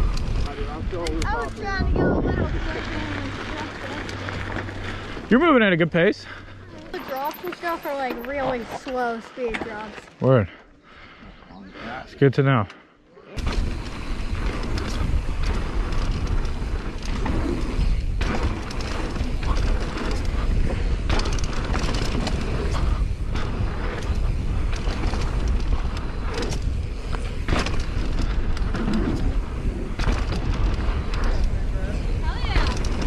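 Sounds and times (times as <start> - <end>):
wind rumbling on microphone: 0.0 - 5.6, 13.4 - 33.0
bike knocks and rattles: 13.4 - 33.0.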